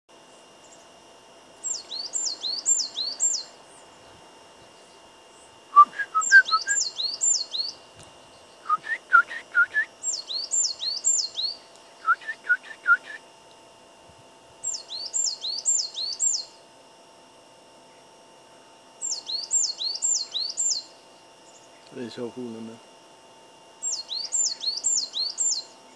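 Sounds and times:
songbird whistling: 0:01.6 - 0:03.6, 0:05.7 - 0:13.2, 0:14.6 - 0:16.5, 0:19.0 - 0:20.9, 0:23.8 - 0:25.8
lower rising bird whistles: 0:05.7 - 0:07.8, 0:08.6 - 0:13.2.

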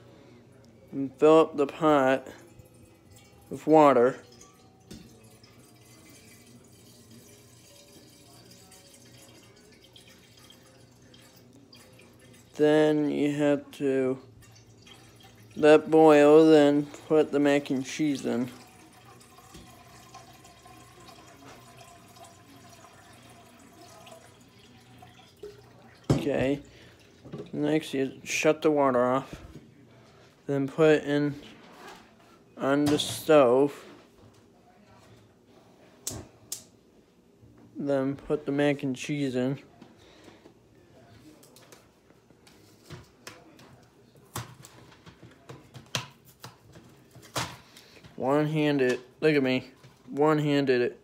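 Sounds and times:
faucet water filling saucepan: 0:01.8 - 0:12.7, 0:13.6 - 0:27.9.

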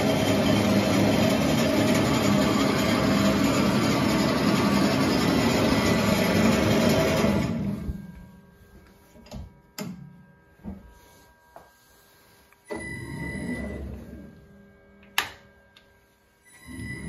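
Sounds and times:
lathe running and spinning down: 0:00.0 - 0:08.2.

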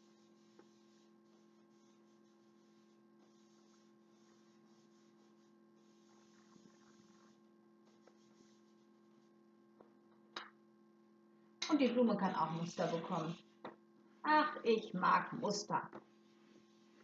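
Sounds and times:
pastel chalk scratching on card: 0:00.0 - 0:09.3, 0:12.5 - 0:13.4
electrical mains hum: 0:00.0 - 0:17.0.

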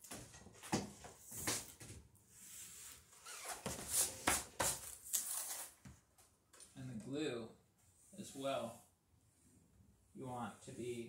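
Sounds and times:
sailcloth and tape rustling: 0:02.6 - 0:05.9.

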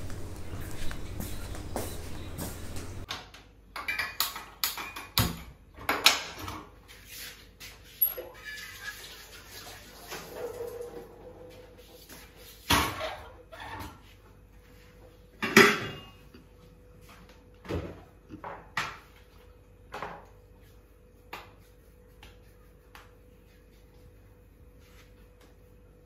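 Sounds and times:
kitchen utensils knocking and clanking: 0:03.0 - 0:06.7, 0:15.4 - 0:16.2.

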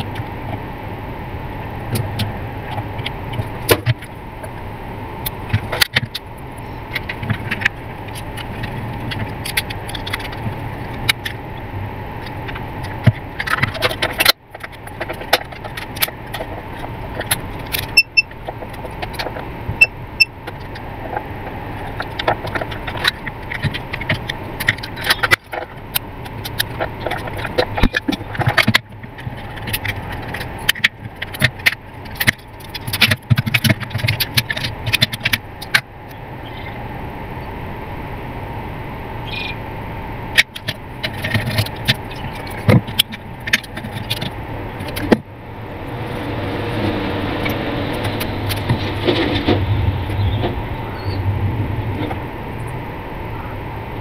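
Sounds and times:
steady hum: 0:00.0 - 0:54.0
plastic parts clicking and rattling: 0:06.9 - 0:11.4, 0:12.2 - 0:35.9, 0:40.3 - 0:45.2.

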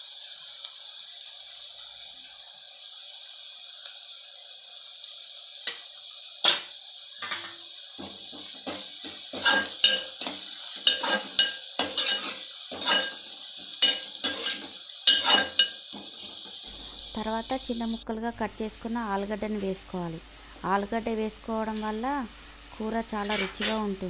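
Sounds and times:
onions sizzling in oil: 0:00.0 - 0:24.0
metal spoon scraping a pan: 0:06.5 - 0:17.2, 0:23.1 - 0:24.0.

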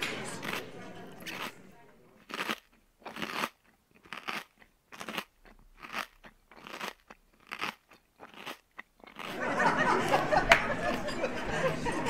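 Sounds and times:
person chewing crunchy food: 0:00.4 - 0:00.6, 0:01.2 - 0:01.6, 0:02.2 - 0:09.5.

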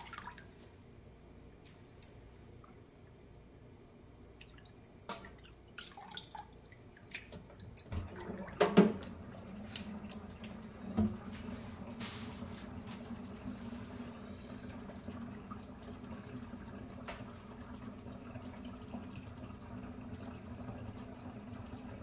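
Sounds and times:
water dripping: 0:00.0 - 0:10.9.

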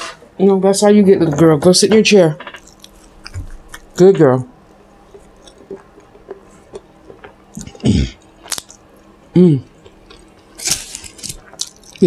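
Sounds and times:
chewing and lip-smacking: 0:02.6 - 0:04.0, 0:04.6 - 0:09.2, 0:09.8 - 0:12.0
person humming mm: 0:07.6 - 0:08.2
foil wrapper rustling: 0:10.5 - 0:12.0.

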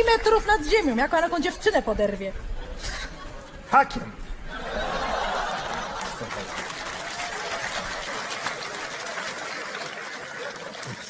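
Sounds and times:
audience laughing: 0:04.4 - 0:11.0
audience applauding: 0:04.8 - 0:11.0.

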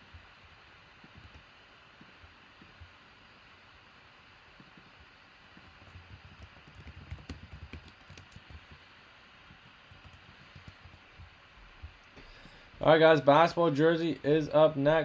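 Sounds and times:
typing on a keyboard: 0:05.5 - 0:08.9, 0:09.5 - 0:11.3.

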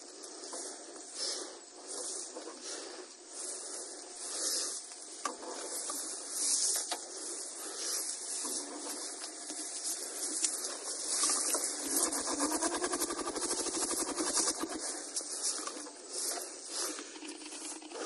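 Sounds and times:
rustling of dry leaves: 0:00.0 - 0:18.0
motorcycle engine firing pulses: 0:11.2 - 0:16.0.

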